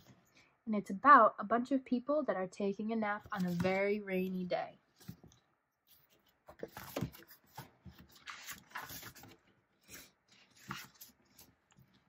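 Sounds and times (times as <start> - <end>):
book pages rustling and turning: 3.2 - 4.0, 4.9 - 12.0.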